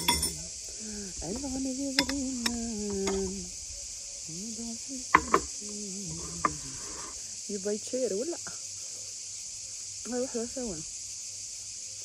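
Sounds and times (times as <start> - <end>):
ceramic crockery clinking: 0.0 - 0.4
cicadas droning: 0.0 - 12.0.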